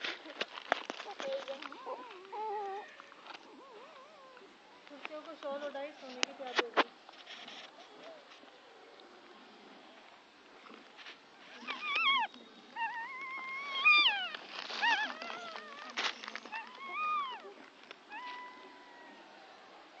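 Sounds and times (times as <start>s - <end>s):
puppies crying with mewing squeals: 1.8s - 4.5s, 11.6s - 19.3s.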